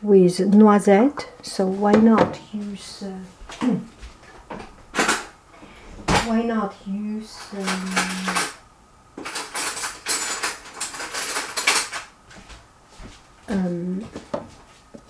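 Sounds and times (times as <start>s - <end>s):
kitchenware clinking and clattering: 4.4s - 5.4s, 7.3s - 8.6s, 9.2s - 12.1s.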